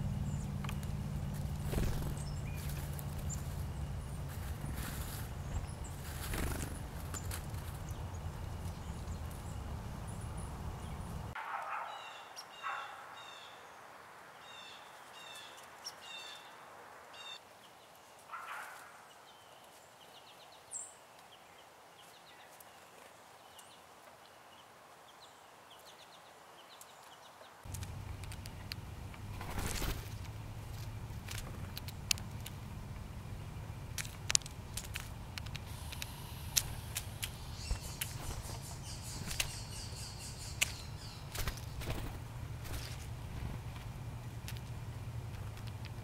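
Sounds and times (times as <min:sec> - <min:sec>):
low rumble: 0:00.0 - 0:11.4
songbird whistling: 0:35.9 - 0:41.3.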